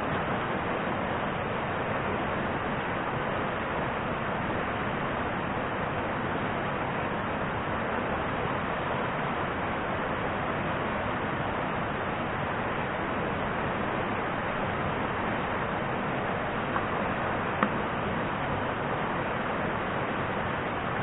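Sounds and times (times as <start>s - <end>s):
river water rushing: 0.0s - 21.0s.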